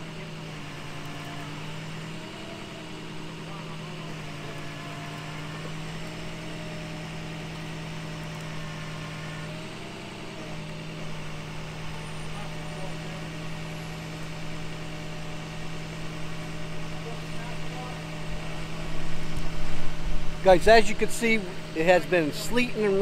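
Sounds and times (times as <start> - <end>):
truck engine idling: 0.0 - 23.0.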